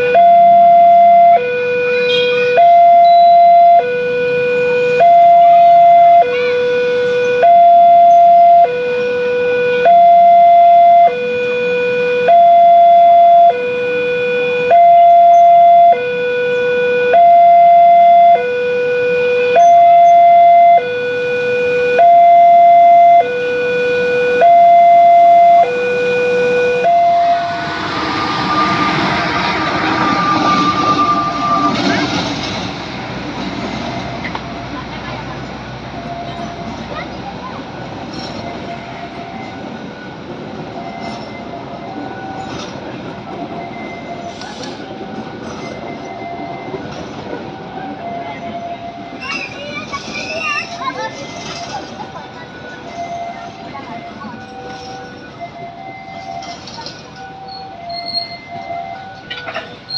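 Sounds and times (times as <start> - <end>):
level crossing two-tone alarm: 0.0 - 32.7, 35.9 - 59.9
faint train rumble: 14.5 - 59.9.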